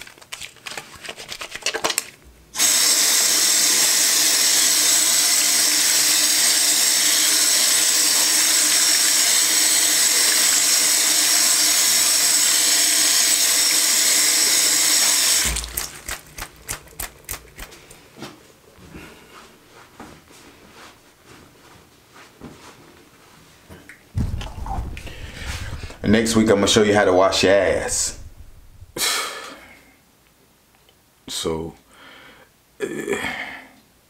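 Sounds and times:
tap water running into sink: 7.8s - 11.8s, 14.3s - 17.6s.

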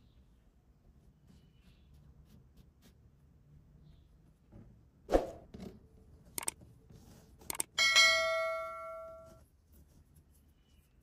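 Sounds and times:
sharp clicks: 6.4s - 6.6s, 7.5s - 7.7s.

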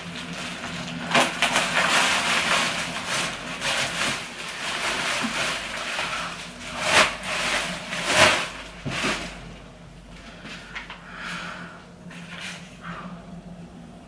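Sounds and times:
plastic wrapping crinkling: 0.0s - 9.5s.

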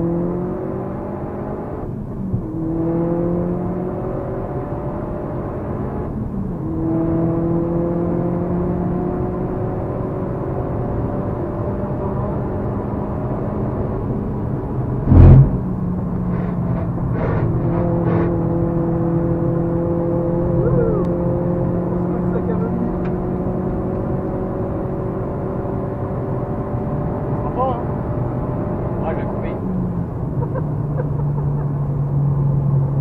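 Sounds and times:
car engine pulling hard: 0.0s - 33.0s
loud thump: 15.1s - 15.8s.

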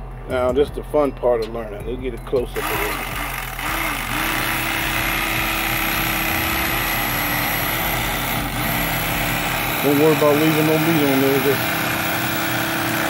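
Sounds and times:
electric knife motor buzz: 2.6s - 13.0s.

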